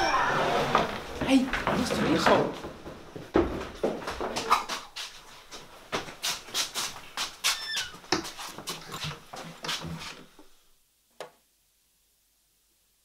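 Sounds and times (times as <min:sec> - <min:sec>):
hurried footsteps: 0:00.6 - 0:10.4
short high squeak: 0:07.5 - 0:08.0.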